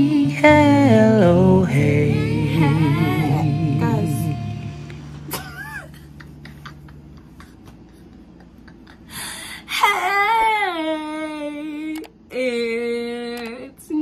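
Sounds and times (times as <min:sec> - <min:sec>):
woman singing long sliding note: 0:00.0 - 0:05.3.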